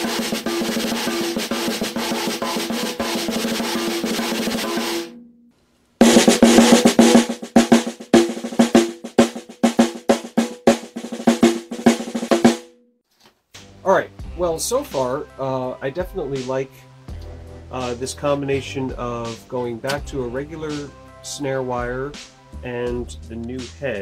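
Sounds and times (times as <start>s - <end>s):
snare drum rolls and strokes: 0.0s - 5.1s, 6.0s - 12.7s.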